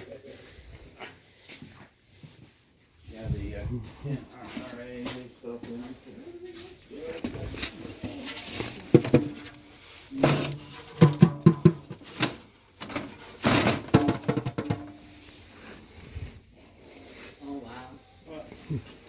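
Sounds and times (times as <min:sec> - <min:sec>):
drum scraping on wooden shelf: 0:08.8 - 0:15.1
tom drum tapped by hand: 0:10.5 - 0:12.0, 0:13.9 - 0:15.0.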